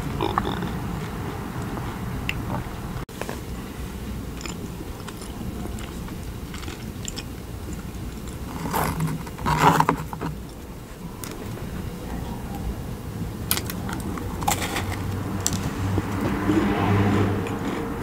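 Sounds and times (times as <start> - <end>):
soft chewing: 4.3 - 12.7, 17.4 - 18.0.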